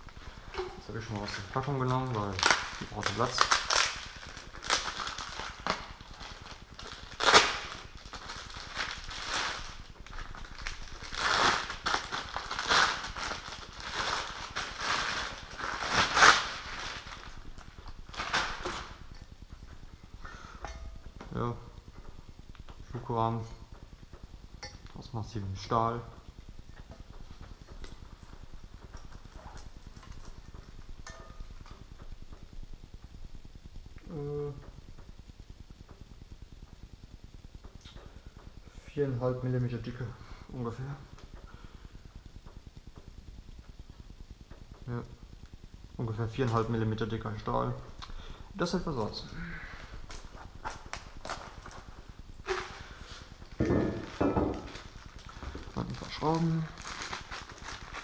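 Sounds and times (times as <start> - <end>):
plastic wrapping crinkling: 0.0 - 20.0, 26.4 - 31.8, 46.1 - 58.0
low steady hum: 0.0 - 58.0.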